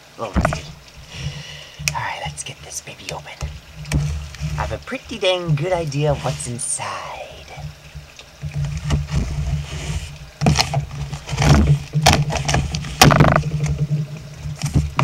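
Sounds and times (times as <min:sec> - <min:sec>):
steady low hum: 0:00.0 - 0:15.0
tape crackling: 0:00.0 - 0:15.0
cardboard scraping: 0:03.5 - 0:06.6, 0:07.7 - 0:15.0.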